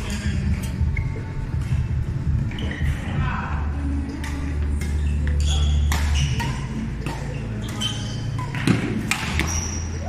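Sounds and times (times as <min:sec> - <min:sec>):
shoes squeaking on court floor: 0:00.0 - 0:01.8, 0:02.5 - 0:03.2, 0:04.8 - 0:10.0
steady low hum: 0:00.0 - 0:10.0
rackets hitting shuttlecock: 0:04.1 - 0:09.8.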